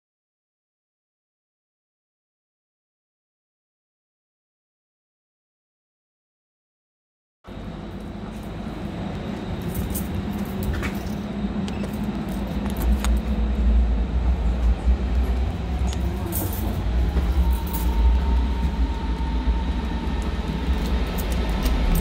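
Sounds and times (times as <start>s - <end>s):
train rumbling: 7.5s - 22.0s
keys jingling: 15.9s - 18.2s.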